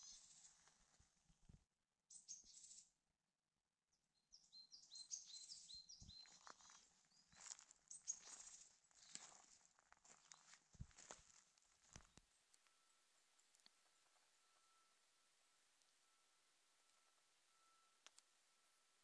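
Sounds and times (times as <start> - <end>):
small birds chirping: 0.0 - 1.0, 2.1 - 3.0, 4.2 - 15.0
soft footsteps on forest floor: 0.0 - 1.2, 5.4 - 12.7.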